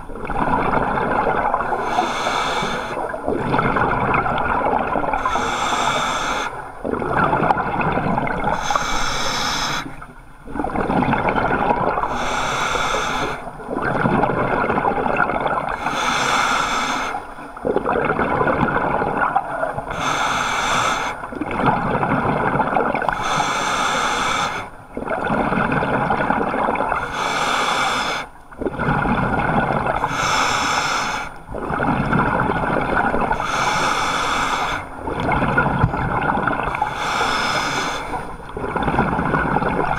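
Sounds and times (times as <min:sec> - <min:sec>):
regulator hissing inhale: 0:01.7 - 0:03.1, 0:05.2 - 0:06.6, 0:08.6 - 0:10.0, 0:12.1 - 0:13.4, 0:15.8 - 0:17.3, 0:19.9 - 0:21.2, 0:23.1 - 0:24.7, 0:27.0 - 0:28.3, 0:30.0 - 0:31.4, 0:33.3 - 0:34.9, 0:36.7 - 0:38.3
diver exhaling bubbles: 0:17.6 - 0:20.2, 0:28.6 - 0:39.9.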